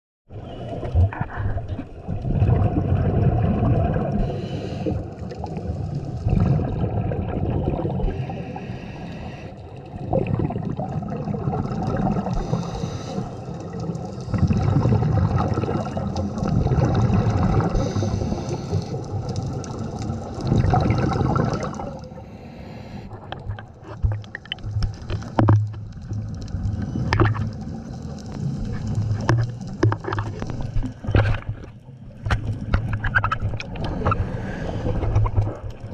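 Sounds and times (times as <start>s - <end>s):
underwater regulator breathing bubbles: 0.8s - 25.5s
sharp clicks and knocks: 23.3s - 25.9s, 29.2s - 34.2s.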